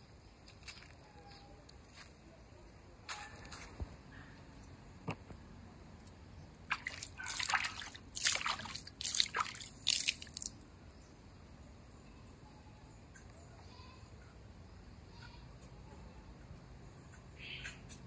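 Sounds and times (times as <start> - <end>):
hand splashing water in tank: 6.7 - 10.6.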